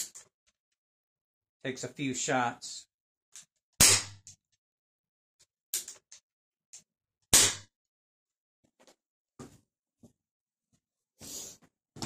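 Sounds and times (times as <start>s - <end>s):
air pistol shots: 3.8s - 4.2s, 7.3s - 7.7s.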